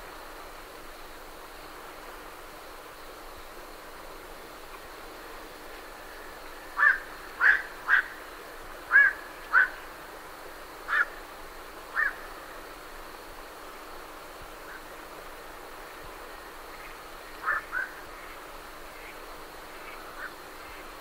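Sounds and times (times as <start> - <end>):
herons calling: 6.2 - 10.0, 10.8 - 11.2, 11.9 - 12.4, 16.7 - 20.9.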